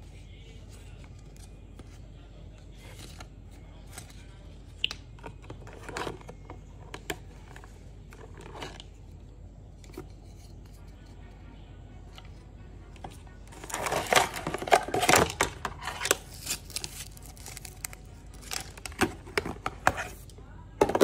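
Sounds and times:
paper rustling: 13.5s - 20.2s.

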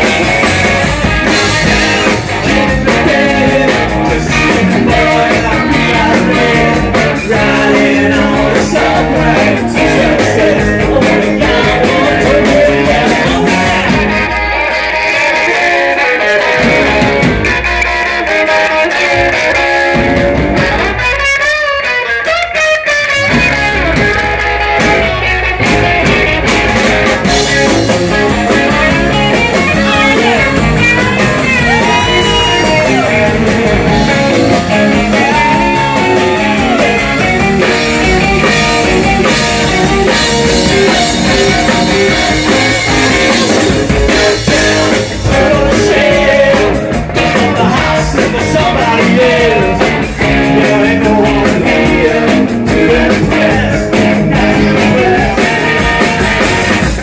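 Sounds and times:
bass guitar: 0.0s - 57.0s
drum kit: 0.0s - 57.0s
electric guitars: 0.0s - 57.0s
person singing: 1.2s - 14.1s, 28.4s - 56.9s.

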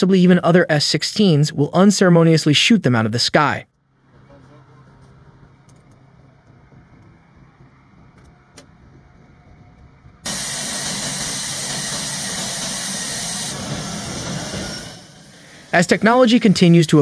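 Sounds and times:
jet engine rushing hiss: 10.2s - 17.0s.

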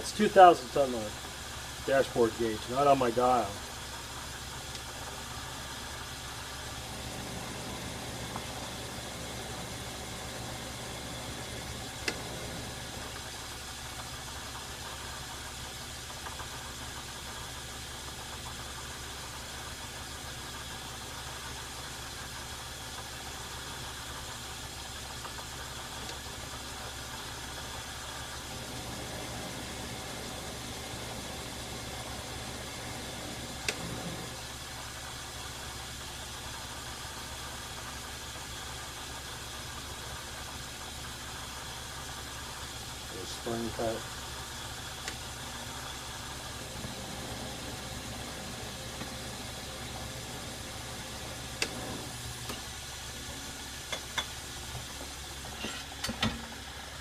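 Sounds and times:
metal lathe motor humming: 4.6s - 14.0s, 26.0s - 35.0s, 43.1s - 55.9s.

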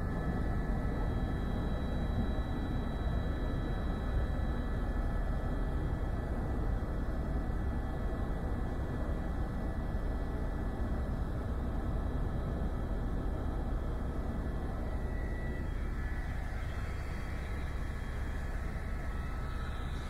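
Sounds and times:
helicopter rotor and engine drone: 0.0s - 20.0s
thin constant whine: 0.0s - 20.0s.

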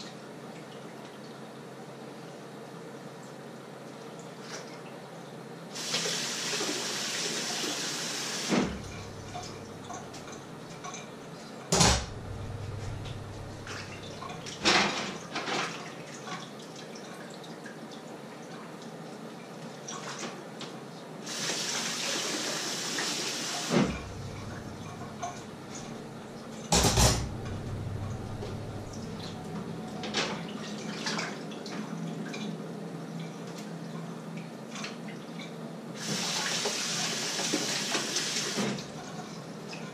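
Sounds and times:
tap water running: 5.8s - 11.1s, 11.7s - 15.6s, 21.2s - 32.5s, 36.0s - 39.4s
dishes and pots clinking: 26.7s - 27.8s.

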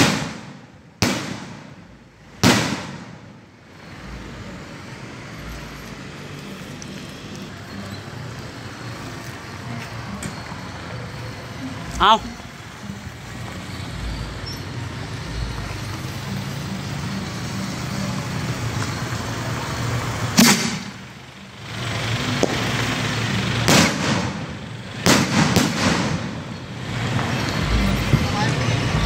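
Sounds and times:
firework shells banging: 20.4s - 21.0s, 23.6s - 27.6s.

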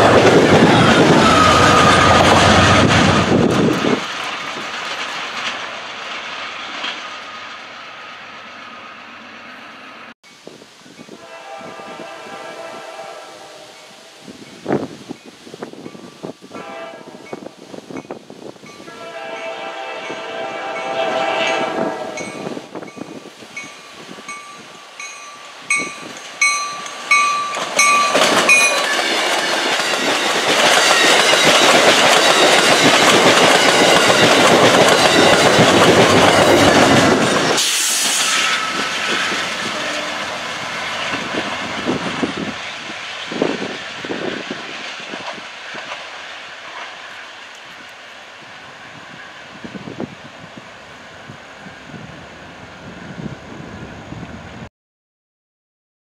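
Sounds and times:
distant train rumble: 0.0s - 54.7s
train wheels on rails: 0.0s - 54.7s
crossing bell ringing: 13.8s - 37.2s.

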